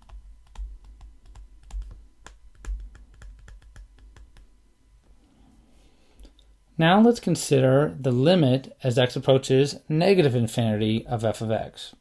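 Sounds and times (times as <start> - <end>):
stylus tapping on tablet screen: 0.0 - 4.5.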